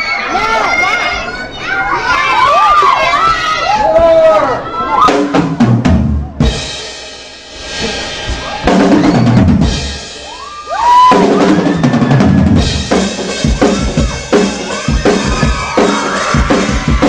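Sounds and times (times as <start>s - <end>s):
drum kit solo: 5.1s - 17.0s.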